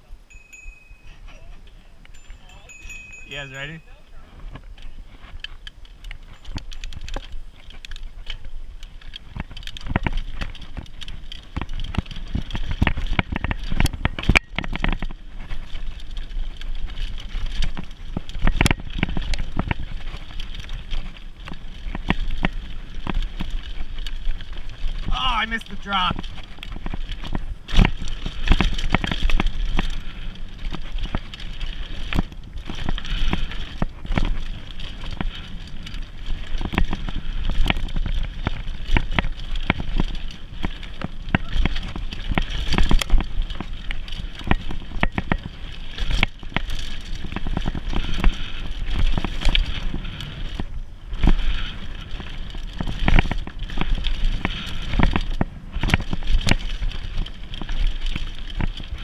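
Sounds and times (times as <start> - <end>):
bike rattling over bumps: 0.3 - 59.0
bike tyres rumbling on dirt: 1.0 - 59.0.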